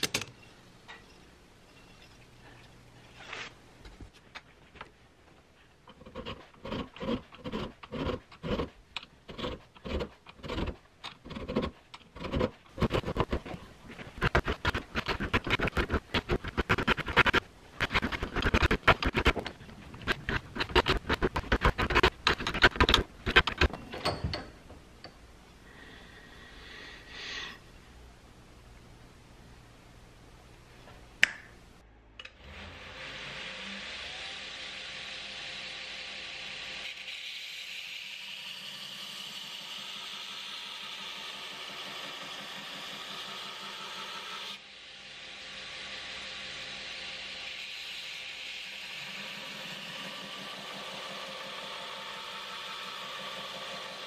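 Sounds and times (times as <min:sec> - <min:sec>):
hand file rasping on steel: 0:05.9 - 0:13.5.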